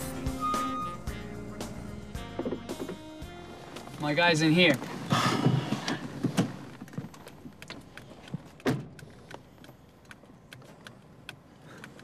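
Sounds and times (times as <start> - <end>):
rustling inside car: 2.2 - 12.0.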